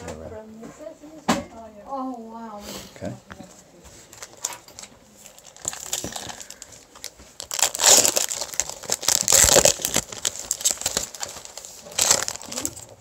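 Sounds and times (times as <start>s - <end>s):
foil wrapper crinkling and tearing: 4.1s - 13.0s.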